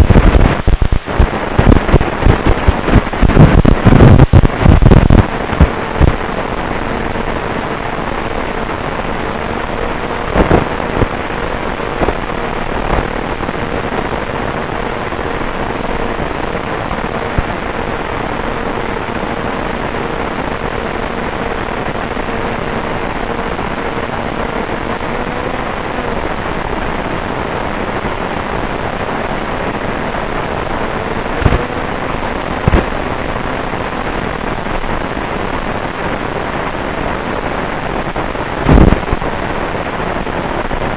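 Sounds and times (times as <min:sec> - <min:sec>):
signal breakup crackles: 0:00.0 - 0:40.9
wind and radio static hiss: 0:00.0 - 0:40.9.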